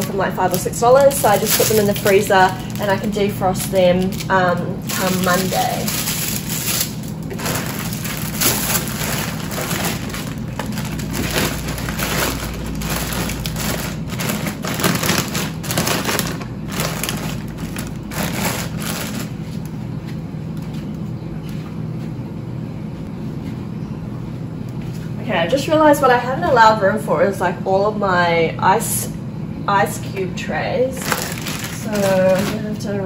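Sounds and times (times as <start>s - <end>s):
plastic packets crinkling: 0.0s - 19.7s, 31.0s - 33.0s
steady low hum: 0.0s - 33.0s.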